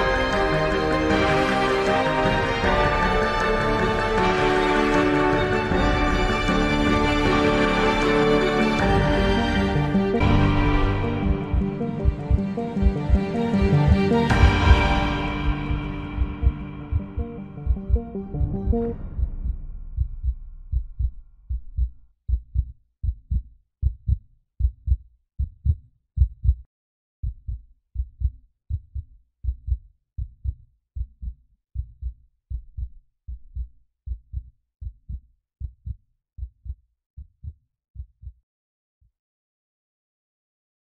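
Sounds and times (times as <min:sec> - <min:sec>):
heartbeat double thumps: 0:09.6 - 0:38.4.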